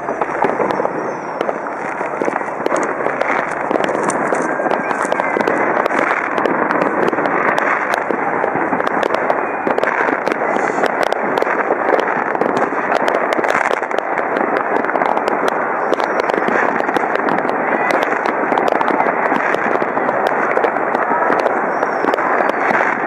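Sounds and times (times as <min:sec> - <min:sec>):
fireworks crackling and popping: 0:00.0 - 0:23.0.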